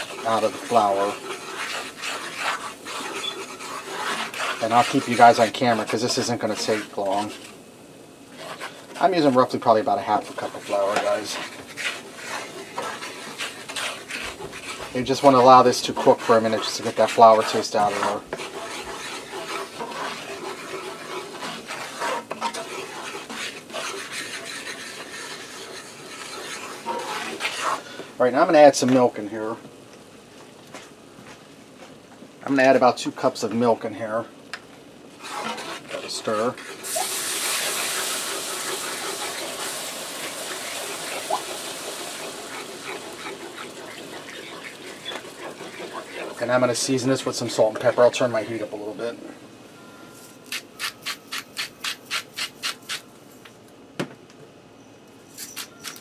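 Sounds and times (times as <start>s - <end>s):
milk hissing in hot pan: 0.0s - 7.6s, 8.2s - 28.0s, 35.2s - 47.6s
wooden spoon scraping skillet: 0.0s - 29.2s, 35.2s - 49.2s.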